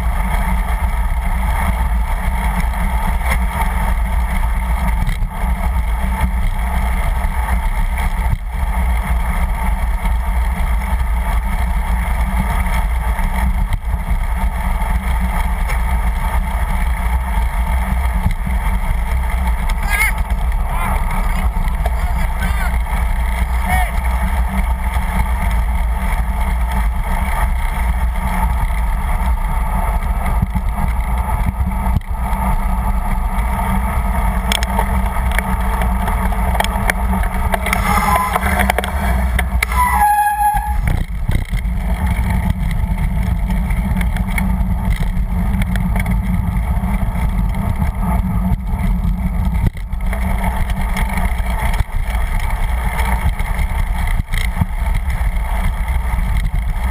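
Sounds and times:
bicycle rolling rumble: 0.0 - 56.9
wind buffeting microphone: 0.0 - 56.9
squeal stepping down in pitch: 37.7 - 41.0.

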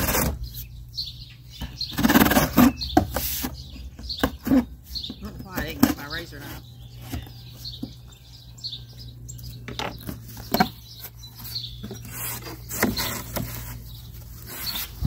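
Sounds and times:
birds chirping: 0.0 - 15.0
cardboard flaps scraping and rustling: 10.1 - 15.0.

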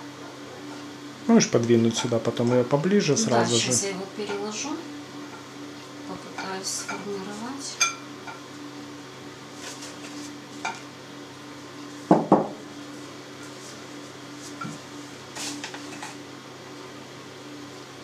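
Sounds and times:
glass dish knocking on table: 12.1 - 12.6.

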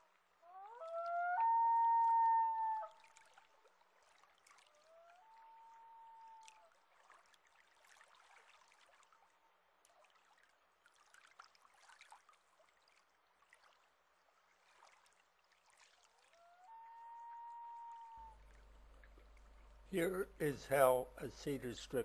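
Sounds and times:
water trickling and lapping: 0.0 - 22.0
loon wails: 0.5 - 2.9, 5.2 - 6.5, 16.5 - 18.4.

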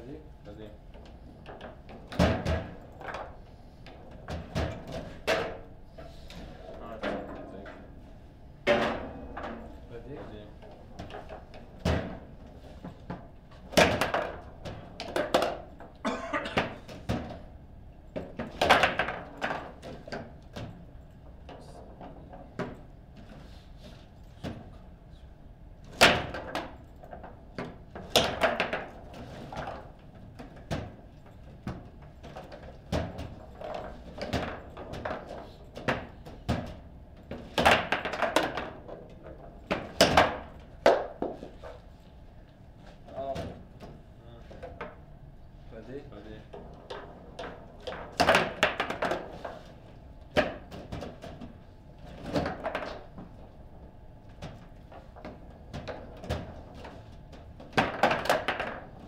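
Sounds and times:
foosball ball knocks and rod bangs: 8.6 - 9.7, 18.2 - 20.2, 27.6 - 30.0, 32.8 - 39.0, 46.6 - 49.6, 52.2 - 53.3, 57.6 - 59.0.

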